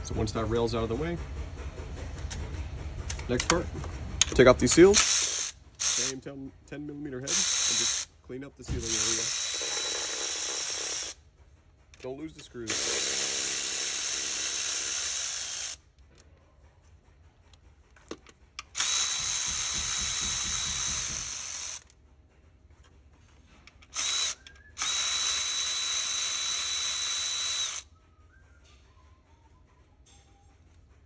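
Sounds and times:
electric ratchet motor whine: 0:05.0 - 0:06.2, 0:07.3 - 0:08.1, 0:08.7 - 0:11.2, 0:12.7 - 0:15.8, 0:18.7 - 0:21.9, 0:24.0 - 0:27.8.

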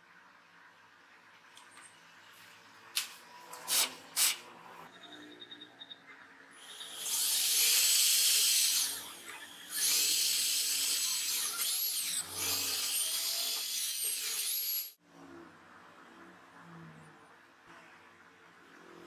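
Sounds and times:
cordless drill drilling wood: 0:06.6 - 0:14.9.

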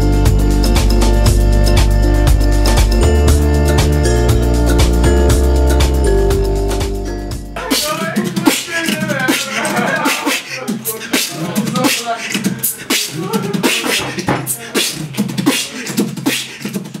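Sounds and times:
person beatboxing: 0:07.6 - 0:17.0.

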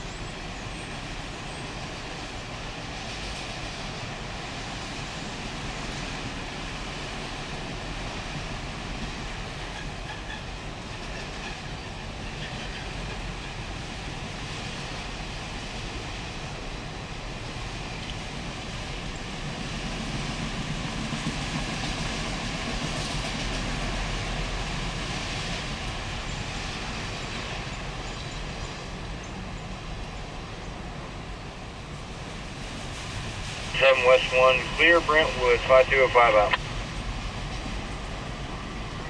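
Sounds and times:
train wheels rolling on rails: 0:00.0 - 0:39.0.

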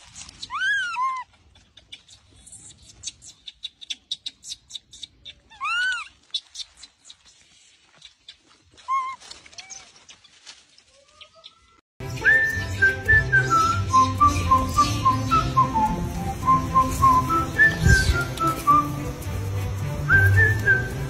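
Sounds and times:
monkey high squeaks: 0:00.1 - 0:07.2, 0:08.8 - 0:10.3
monkey coo call: 0:00.4 - 0:01.9, 0:03.6 - 0:06.1, 0:08.8 - 0:10.0.

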